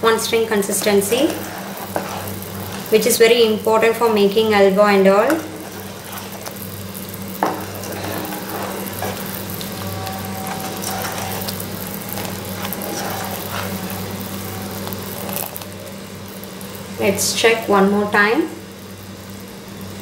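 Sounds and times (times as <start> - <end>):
syrup boiling and bubbling: 0.4 - 17.0
low hum: 0.8 - 16.4.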